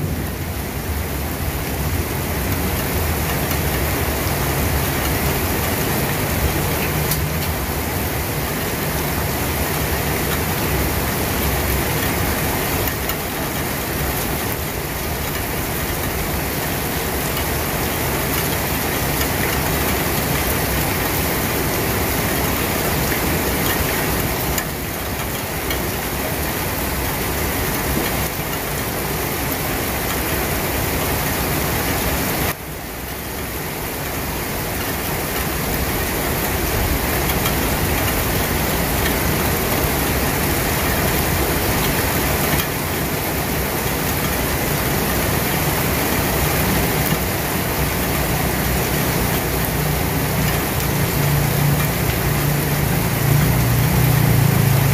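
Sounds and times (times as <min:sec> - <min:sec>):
steady rain falling: 0:00.0 - 0:54.9.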